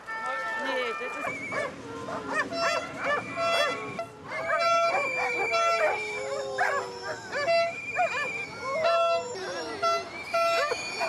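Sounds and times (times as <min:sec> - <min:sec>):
dogs barking: 0:01.5 - 0:08.2.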